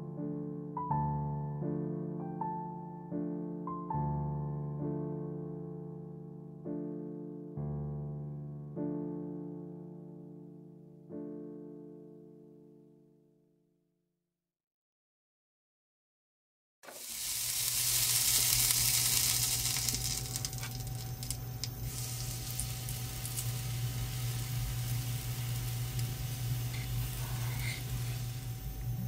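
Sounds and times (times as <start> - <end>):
fat sizzling in a skillet: 16.8 - 29.0
low steady hum: 17.6 - 29.0.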